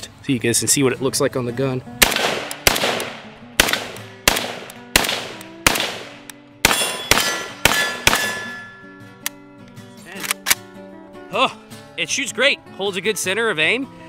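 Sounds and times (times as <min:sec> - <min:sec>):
rifle shots: 0:02.0 - 0:08.6
metallic ringing: 0:06.7 - 0:09.1.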